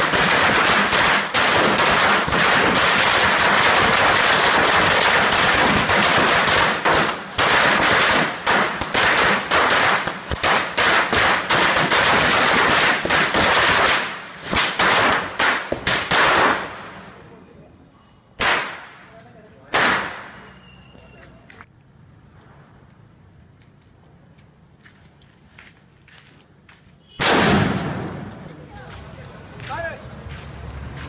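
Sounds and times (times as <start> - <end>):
firecrackers banging: 0.0 - 17.4, 18.4 - 21.1, 27.2 - 31.0.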